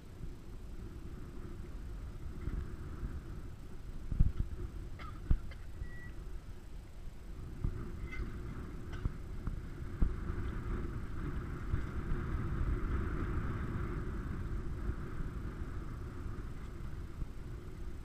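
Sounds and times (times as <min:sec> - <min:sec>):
engine rumbling: 0:00.0 - 0:18.0.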